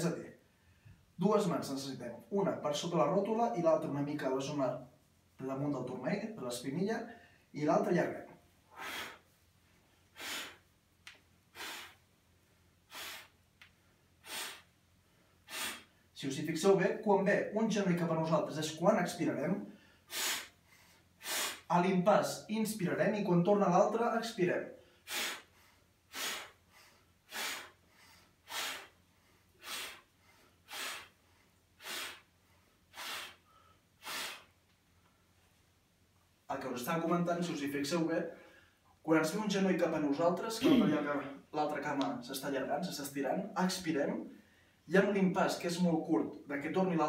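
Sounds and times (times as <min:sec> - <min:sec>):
man breathing out forcefully: 0:08.7 - 0:09.4, 0:10.1 - 0:10.7, 0:11.5 - 0:12.1, 0:12.9 - 0:13.4, 0:14.2 - 0:14.7, 0:15.3 - 0:16.0, 0:19.8 - 0:21.7, 0:24.8 - 0:29.0, 0:29.6 - 0:31.2, 0:31.8 - 0:32.3, 0:32.9 - 0:34.6
short quick breaths in: 0:08.7 - 0:09.4, 0:10.0 - 0:10.7, 0:11.5 - 0:12.1, 0:12.8 - 0:16.1, 0:19.7 - 0:21.7, 0:24.8 - 0:34.6
man exhaling sharply: 0:11.5 - 0:12.0, 0:12.9 - 0:13.4, 0:15.4 - 0:16.0, 0:28.4 - 0:29.0, 0:30.7 - 0:31.2, 0:32.9 - 0:34.6.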